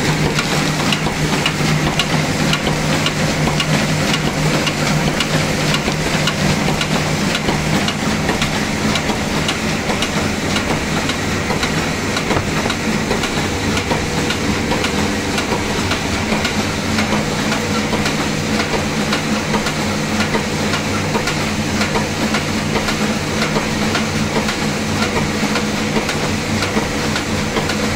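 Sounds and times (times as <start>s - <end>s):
machine hum: 0.0s - 27.9s
machine mechanical clatter: 0.0s - 27.9s.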